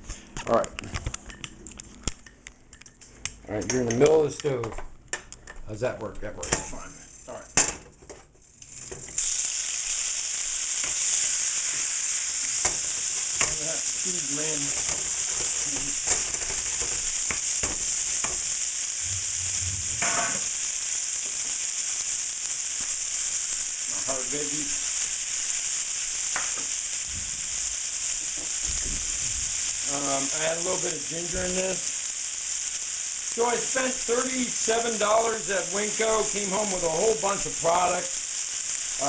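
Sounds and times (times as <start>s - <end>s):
chicken sizzling in hot oil: 8.4s - 39.0s.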